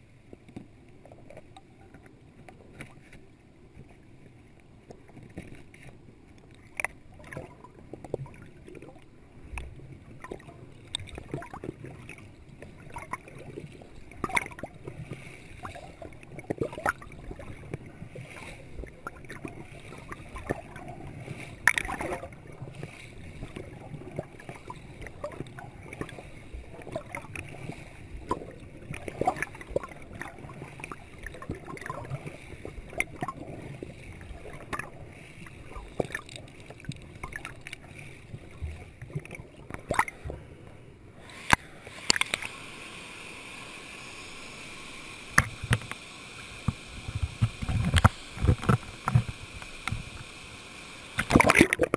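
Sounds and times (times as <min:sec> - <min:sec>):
muffled underwater rush of water: 0:00.0 - 0:51.9
steady hiss of flowing water: 0:00.0 - 0:51.9
sharp underwater clicks and knocks: 0:04.9 - 0:17.9, 0:18.8 - 0:26.2, 0:26.8 - 0:32.2, 0:34.5 - 0:34.9, 0:35.6 - 0:37.8, 0:38.5 - 0:40.4, 0:41.3 - 0:42.6, 0:45.3 - 0:46.0, 0:46.6 - 0:50.3, 0:51.1 - 0:51.9.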